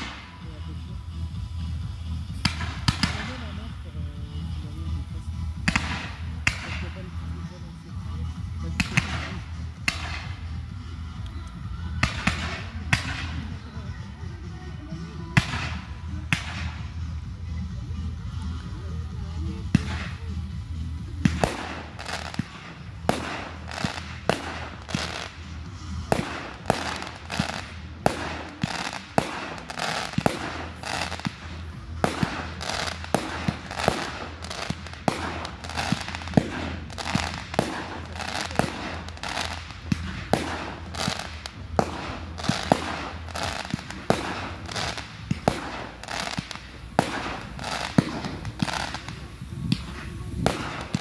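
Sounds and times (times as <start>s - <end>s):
firework bangs: 0.0s - 11.0s, 11.8s - 13.7s, 15.2s - 17.1s, 19.5s - 51.0s
firework crackling: 0.0s - 51.0s.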